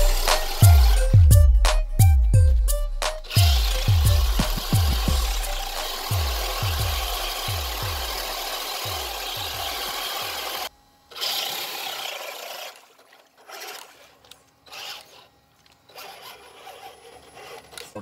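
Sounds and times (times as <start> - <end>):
toy truck motor whirring: 0.0 - 1.2, 3.2 - 18.0
rap song with deep bass: 0.0 - 9.8
wheels churning through mud: 3.3 - 18.0.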